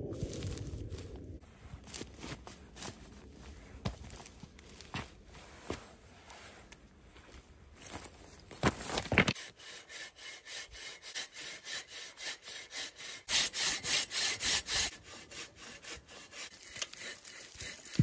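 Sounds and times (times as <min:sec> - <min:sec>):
hand saw cutting wood: 0:09.3 - 0:18.0.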